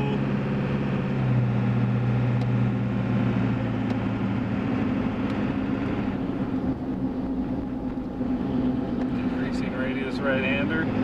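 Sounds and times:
diesel engine drone in cab: 0:00.0 - 0:11.0
mud tires humming: 0:00.0 - 0:11.0.

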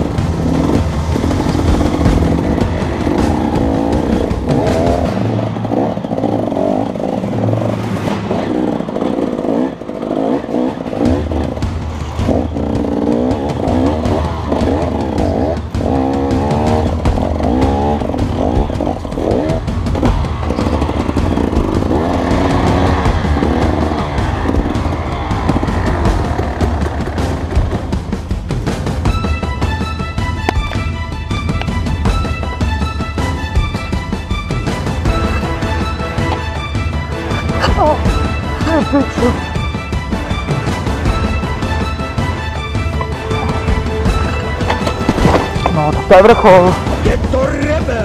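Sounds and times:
dirt bike engine revving: 0:00.0 - 0:29.4
background music: 0:00.0 - 0:48.0.

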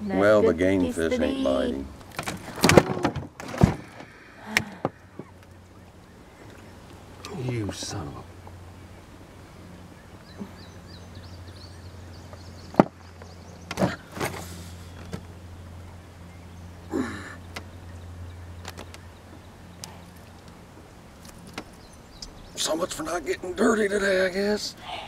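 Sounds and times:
knocks and thumps in canoe: 0:02.1 - 0:05.3.

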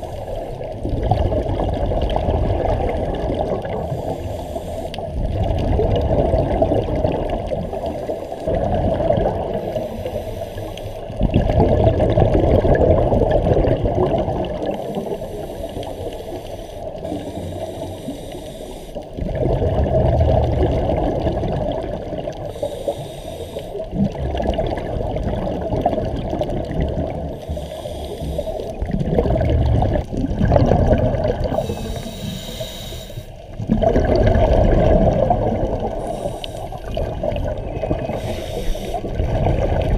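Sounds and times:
bubbling regulator exhaust: 0:00.0 - 0:39.9
faint high hisses: 0:03.9 - 0:05.0, 0:09.7 - 0:11.1, 0:14.8 - 0:19.0, 0:22.5 - 0:23.8, 0:27.4 - 0:28.7, 0:31.6 - 0:33.4, 0:36.0 - 0:36.8, 0:38.1 - 0:39.1.

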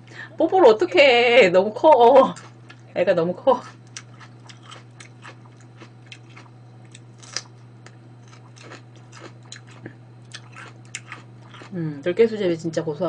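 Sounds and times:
low hum: 0:00.0 - 0:13.0
crunchy bites and chewing: 0:03.6 - 0:11.8.

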